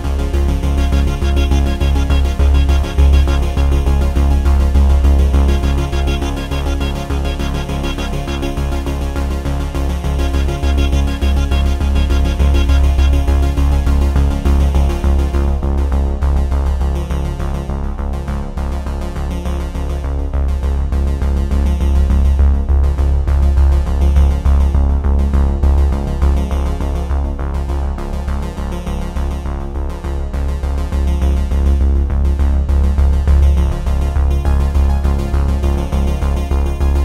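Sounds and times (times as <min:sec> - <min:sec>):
electronic synthesizer music: 0:00.0 - 0:15.7
deep bass: 0:00.0 - 0:37.0.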